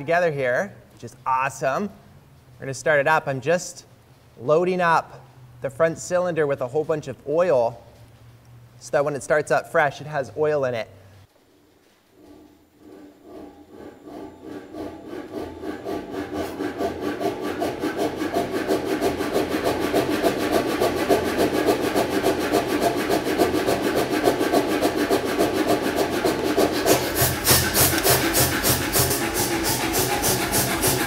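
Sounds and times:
power hammer compressor pumping: 12.2 - 31.0.

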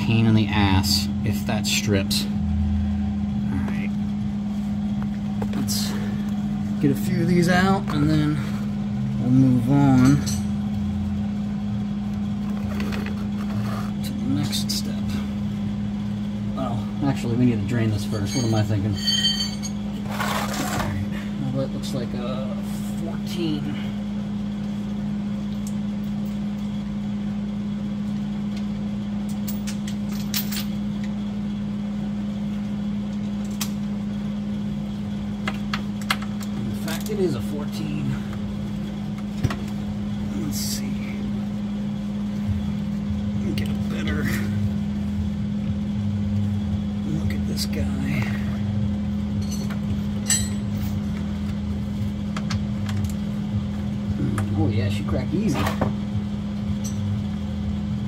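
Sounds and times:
low mechanical hum: 0.0 - 58.0
wrench clinking against metal: 18.1 - 19.9, 49.4 - 51.0, 56.8 - 57.2.

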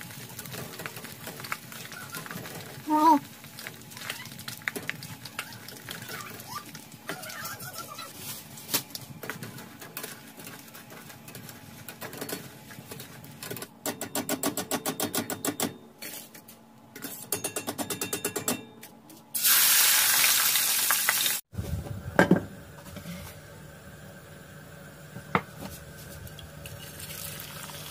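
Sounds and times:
bread deep-frying in oil: 0.0 - 13.6, 19.4 - 27.9.

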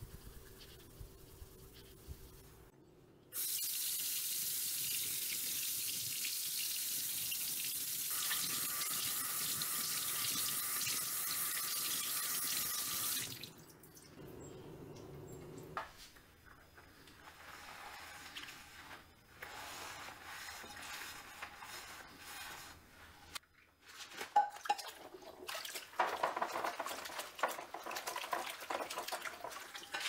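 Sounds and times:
faucet running into sink: 3.4 - 13.5.

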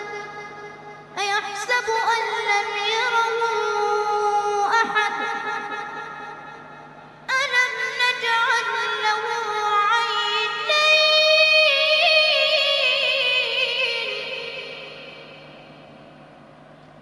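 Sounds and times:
child chanting recitation: 1.2 - 6.1, 7.3 - 14.9.

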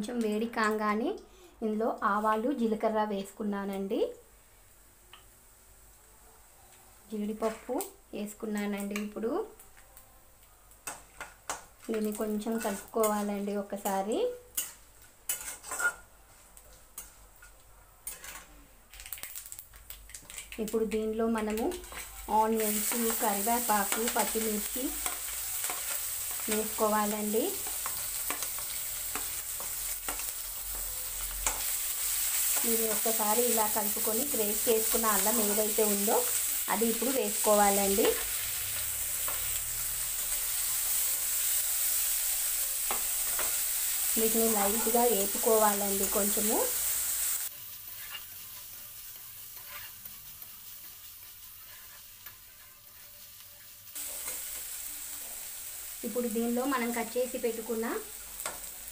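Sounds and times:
food sizzling in hot fat: 0.0 - 58.9
spatula stirring: 14.6 - 16.0, 17.0 - 18.5, 21.7 - 26.8, 47.5 - 54.4
steel spatula scraping iron pan: 15.3 - 16.0, 18.0 - 18.5, 47.9 - 50.2, 50.8 - 54.4.

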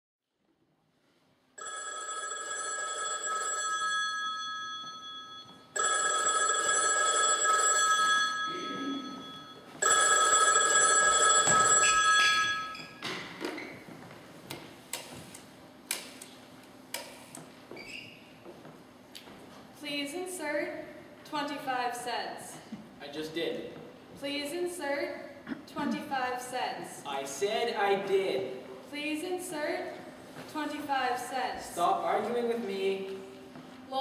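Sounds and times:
telephone ringing: 1.6 - 13.0.

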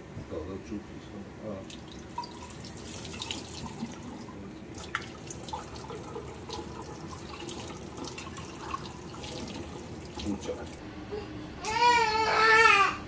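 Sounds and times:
water drips: 1.6 - 10.8
water pouring and splashing: 1.7 - 10.8.

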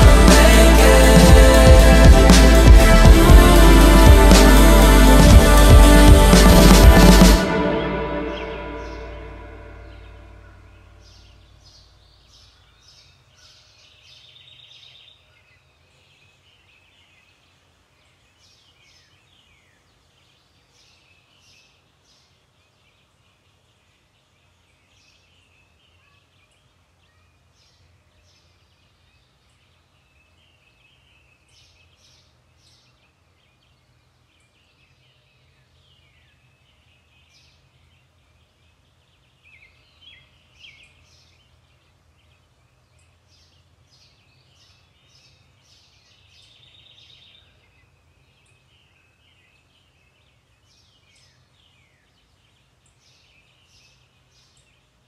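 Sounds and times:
music: 0.0 - 10.5.

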